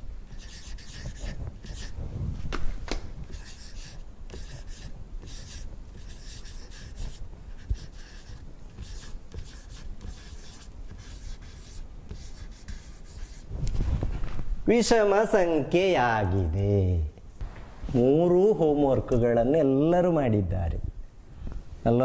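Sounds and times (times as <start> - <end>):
marker scratching on paper: 0.3 - 2.0, 3.3 - 13.5.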